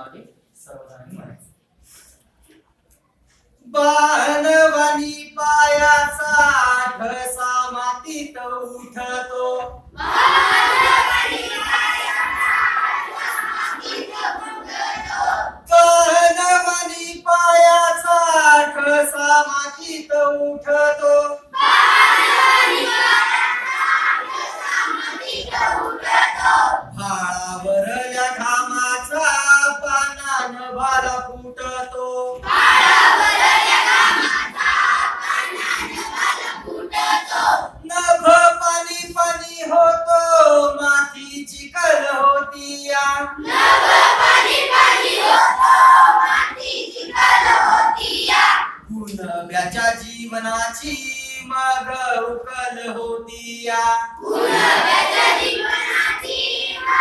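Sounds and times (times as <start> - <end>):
children singing in chorus: 10.0 - 15.6, 21.6 - 27.0, 32.4 - 37.8, 43.4 - 48.9, 54.2 - 57.0.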